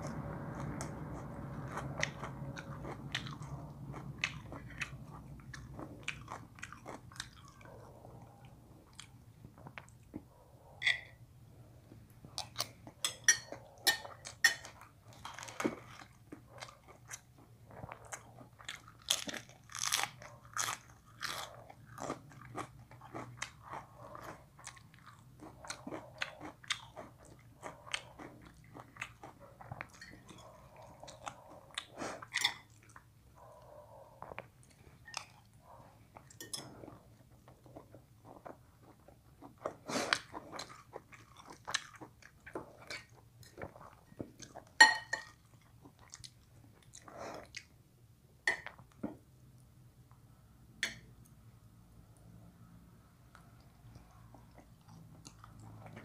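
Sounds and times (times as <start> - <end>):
man chewing crunchy lettuce: 0.0 - 10.2, 13.8 - 33.1, 34.2 - 47.8.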